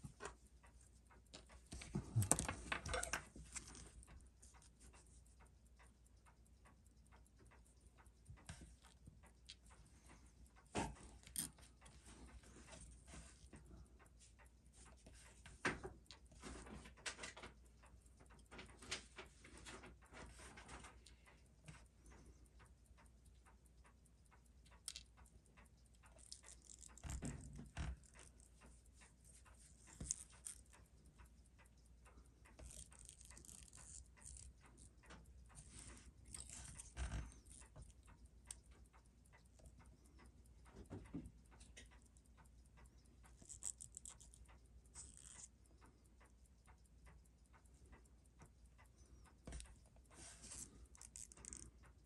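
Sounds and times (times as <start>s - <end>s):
small tool clicks and taps: 14.9s - 52.0s.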